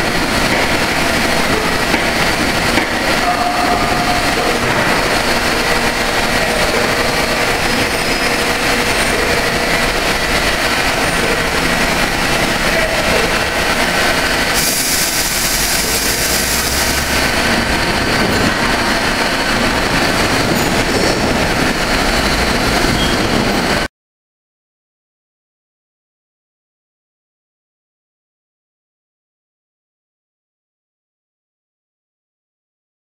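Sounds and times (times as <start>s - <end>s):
machining center running: 0.0s - 23.9s.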